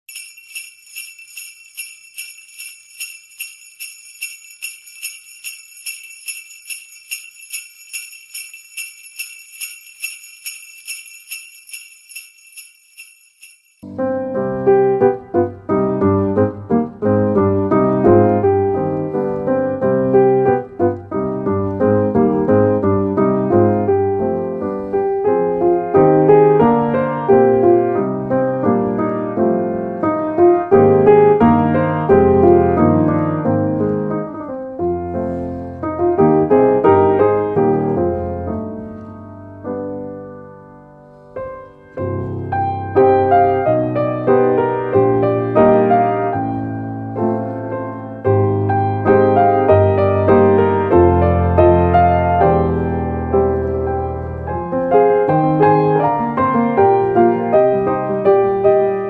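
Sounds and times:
jingle bells shaken: 0:00.0 - 0:13.9
piano music: 0:13.8 - 0:59.0.

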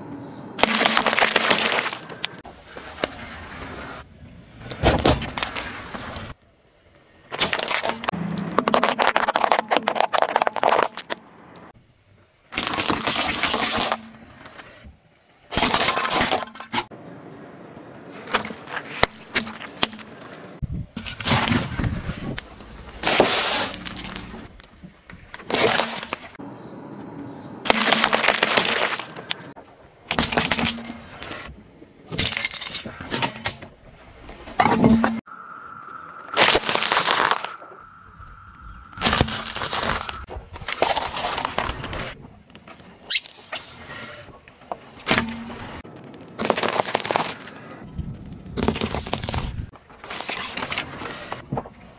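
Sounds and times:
car tyre crunching objects: 0:00.6 - 0:04.0, 0:07.3 - 0:11.8, 0:18.1 - 0:26.4, 0:27.6 - 0:31.5, 0:34.3 - 0:37.9, 0:38.6 - 0:42.2, 0:44.9 - 0:51.7.

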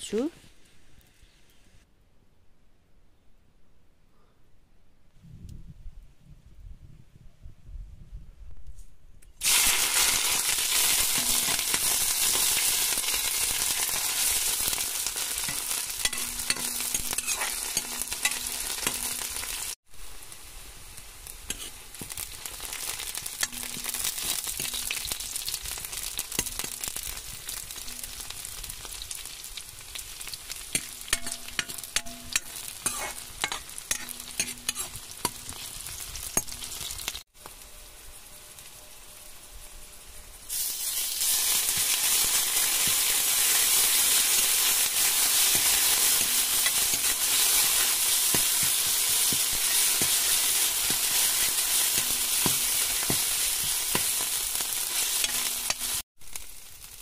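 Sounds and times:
onions sizzling in hot oil: 0:09.4 - 0:57.0
metal ladle scraping a pan: 0:10.8 - 0:12.6, 0:15.4 - 0:19.6, 0:21.5 - 0:21.8, 0:30.7 - 0:37.0, 0:45.0 - 0:56.0.

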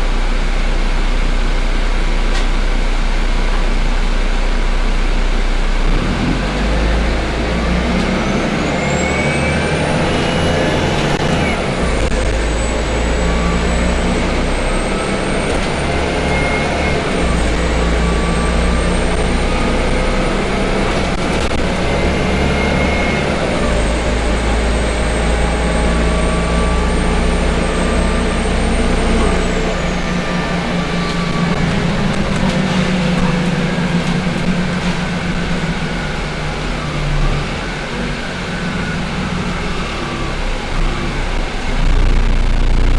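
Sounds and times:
bus engine drone: 0:00.0 - 0:42.9
high whine: 0:00.0 - 0:42.9
bus body rattling: 0:08.7 - 0:36.8.

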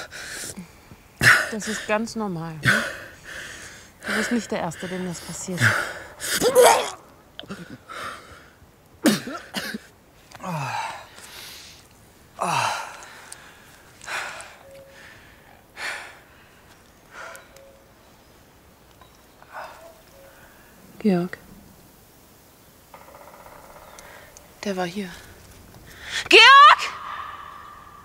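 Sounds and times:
man retching and gagging: 0:05.6 - 0:07.8.

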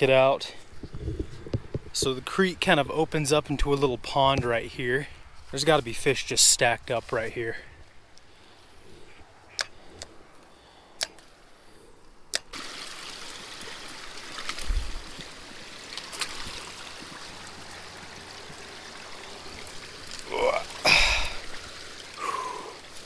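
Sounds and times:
creek water trickling: 0:00.0 - 0:23.0
boots wading through water: 0:13.3 - 0:23.0.

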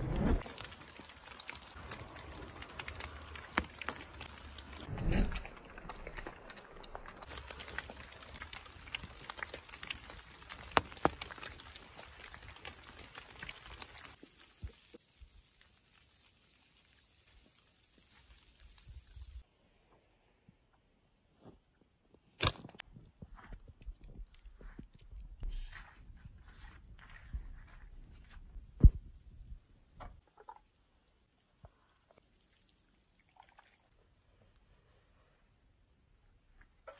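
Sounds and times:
fire crackling and popping: 0:00.0 - 0:19.4
faint hiss of fire: 0:14.1 - 0:19.5.

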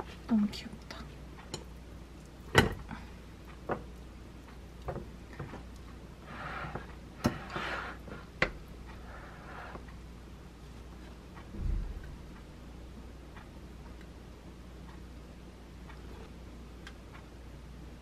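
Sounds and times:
spatula scraping: 0:05.3 - 0:08.3, 0:08.9 - 0:09.9.

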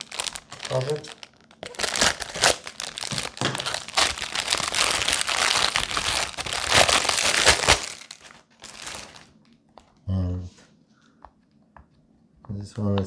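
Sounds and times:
plastic bag crinkling: 0:00.0 - 0:09.5.

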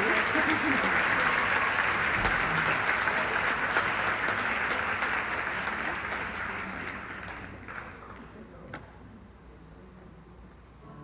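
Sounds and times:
audience applause: 0:00.0 - 0:08.4.

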